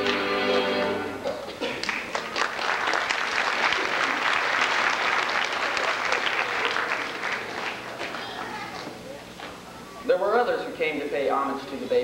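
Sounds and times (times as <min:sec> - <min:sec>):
audience applause: 0:01.6 - 0:09.0.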